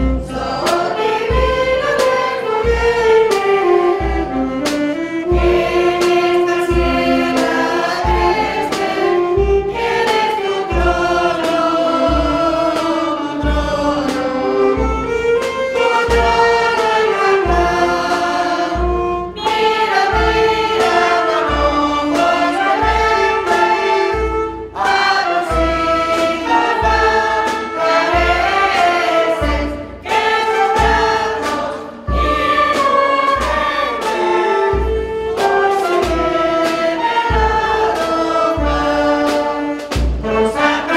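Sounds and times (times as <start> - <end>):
women's choir singing a hymn: 0.0 - 40.9
clarinets playing: 13.1 - 40.9.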